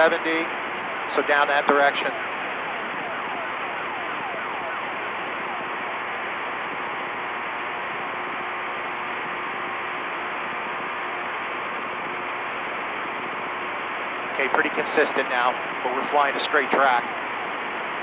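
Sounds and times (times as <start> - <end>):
radio static hiss: 0.0 - 9.0, 14.3 - 18.0
falling siren-like sweeps: 1.9 - 6.7.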